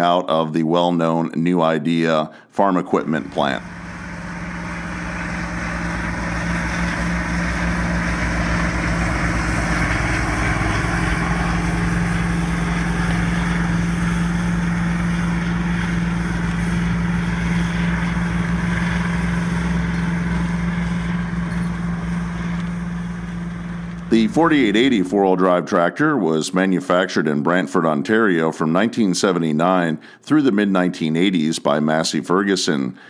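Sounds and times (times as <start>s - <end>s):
tractor diesel engine under load: 2.9s - 26.4s.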